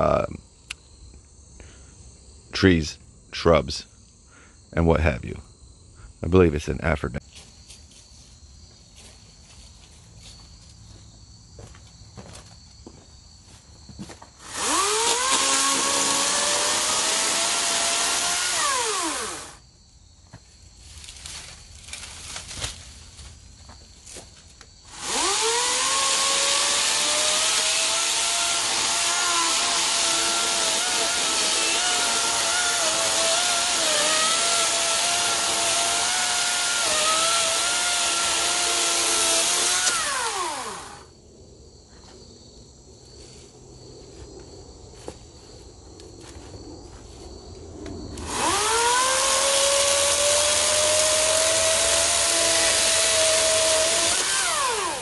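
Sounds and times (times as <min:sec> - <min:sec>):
chainsaw cutting wood: 0:14.4 - 0:19.6, 0:24.9 - 0:41.1, 0:48.2 - 0:55.0.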